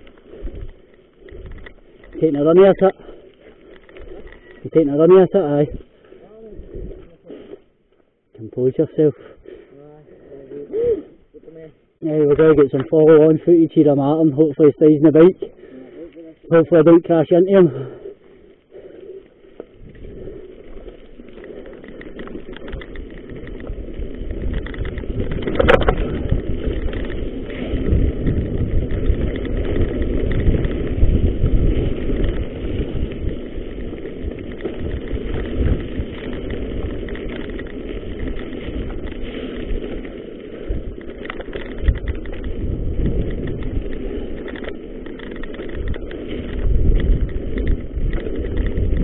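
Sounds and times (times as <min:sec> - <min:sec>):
wind rushing over microphone: 0:00.0 - 0:02.9, 0:19.7 - 0:49.0
bike tyres rattling over gravel: 0:00.0 - 0:10.8, 0:11.5 - 0:49.0.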